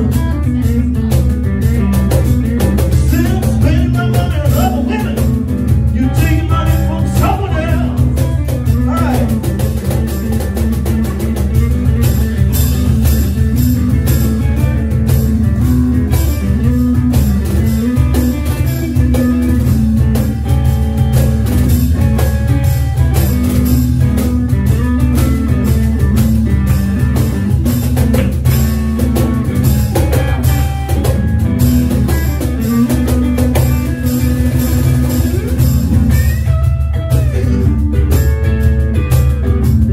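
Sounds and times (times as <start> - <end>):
cajon drum: 0.0 - 39.9
electric guitar: 0.0 - 39.9
man singing: 3.0 - 9.6, 37.2 - 38.0.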